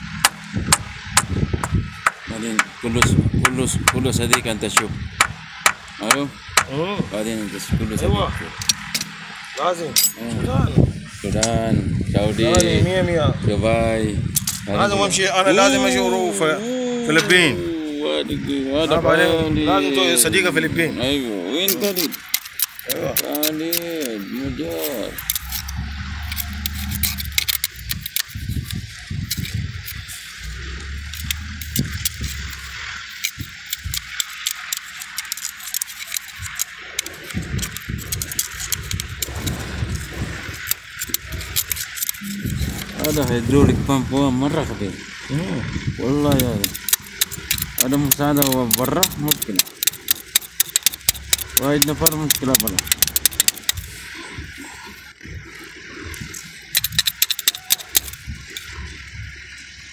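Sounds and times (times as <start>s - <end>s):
low rumbles: 0.0s - 59.9s
steady low hum: 0.0s - 59.9s
metallic clinks and rattles: 8.6s - 10.4s, 14.3s - 14.7s, 21.6s - 43.4s, 46.2s - 55.2s, 56.0s - 59.8s.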